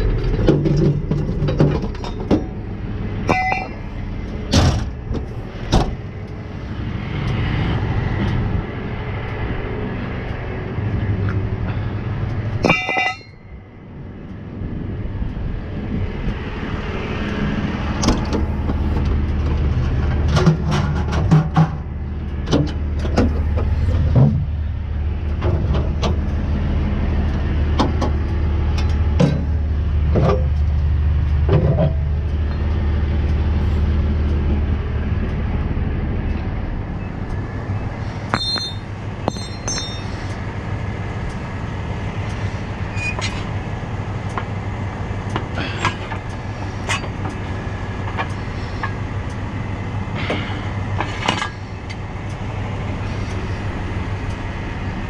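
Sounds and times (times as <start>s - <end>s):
metal clanks and knocks: 0.0s - 2.6s, 3.2s - 6.0s, 12.6s - 13.5s, 18.0s - 24.5s, 27.7s - 30.8s, 31.4s - 32.7s, 38.3s - 40.3s, 45.3s - 47.4s, 50.2s - 51.6s
truck engine idling: 0.0s - 55.0s
high ringing pings: 38.3s - 40.2s.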